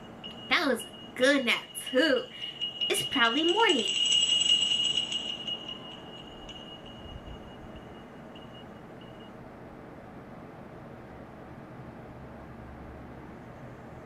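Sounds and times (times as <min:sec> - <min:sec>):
high ringing tone: 0:00.0 - 0:09.4.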